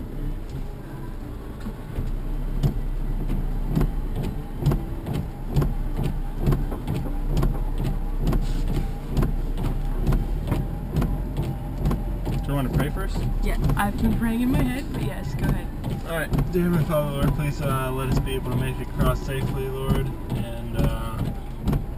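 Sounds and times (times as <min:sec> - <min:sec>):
low engine hum: 0:00.0 - 0:21.9
regular knocks: 0:01.7 - 0:21.9.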